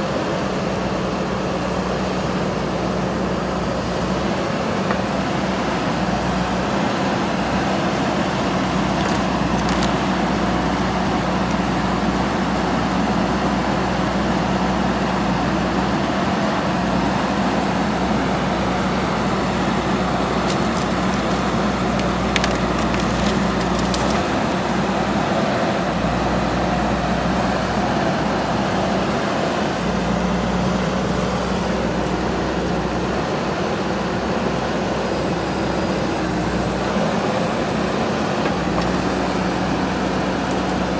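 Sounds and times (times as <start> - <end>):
diesel engine running under load: 0.0 - 40.9
bamboo snapping: 8.9 - 10.2, 20.3 - 24.7.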